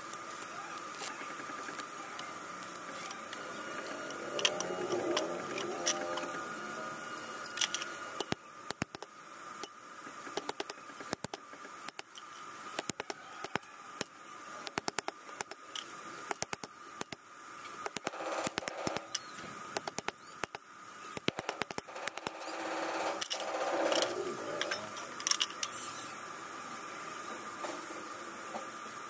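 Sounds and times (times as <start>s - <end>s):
metal tubes clinking: 3.8s - 8.4s, 23.2s - 25.9s.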